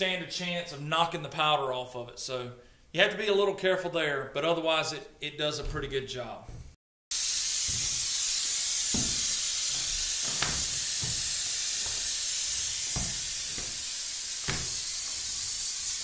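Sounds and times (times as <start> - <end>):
compressed air hissing: 7.1 - 16.0
soft knocks of spray gun: 7.2 - 15.4.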